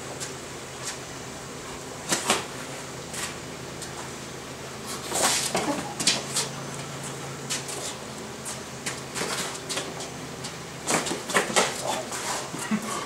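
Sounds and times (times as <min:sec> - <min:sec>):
feet scuffing on paving: 0:04.9 - 0:12.5.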